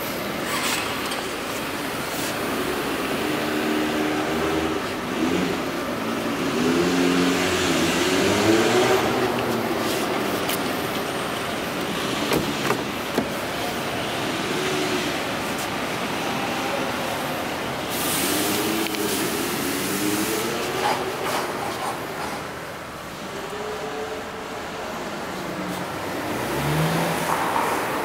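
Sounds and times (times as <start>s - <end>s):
steady background noise: 0.0s - 28.0s
vehicle engines revving: 0.0s - 28.0s.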